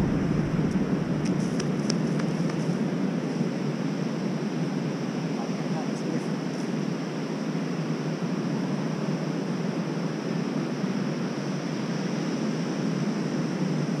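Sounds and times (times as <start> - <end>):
ocean surf breaking: 0.0 - 2.2
wind: 0.0 - 14.0.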